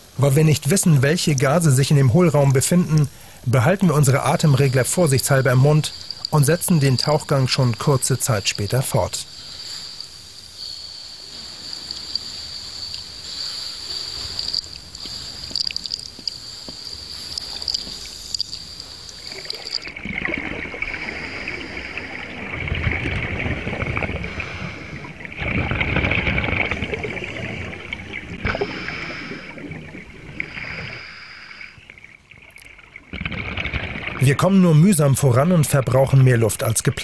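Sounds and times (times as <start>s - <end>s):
exhaled bubbles: 0.0s - 37.0s
regulator breathing hiss: 3.0s - 3.6s, 9.2s - 19.8s, 24.3s - 25.3s, 28.4s - 29.8s, 30.4s - 31.9s.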